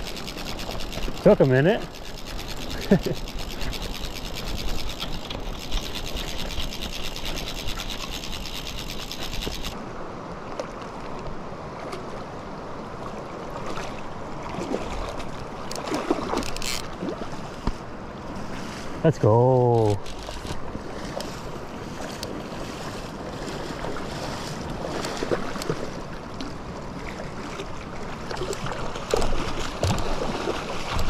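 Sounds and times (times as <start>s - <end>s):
fishing reel drag clicking: 0.0s - 9.8s, 15.7s - 16.9s, 20.0s - 20.6s
river flowing: 0.0s - 31.0s.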